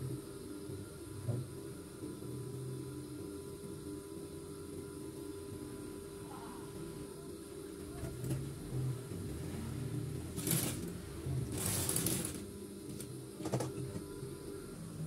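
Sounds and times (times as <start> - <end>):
sewing machine motor humming: 10.1 - 14.0
sewing machine stitching: 10.3 - 10.9, 11.5 - 12.4.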